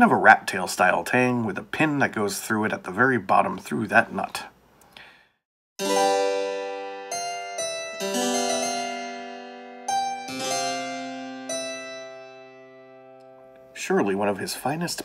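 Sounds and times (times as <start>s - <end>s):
keyboard chords ringing: 5.8s - 13.8s.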